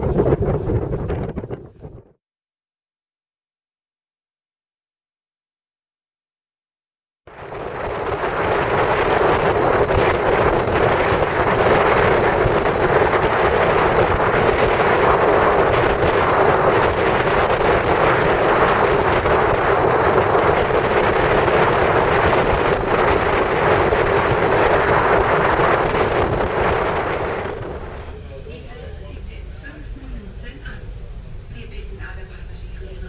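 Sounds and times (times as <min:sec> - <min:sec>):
wind rushing: 0:00.0 - 0:02.2, 0:07.3 - 0:29.1
sea rushing: 0:07.3 - 0:28.8.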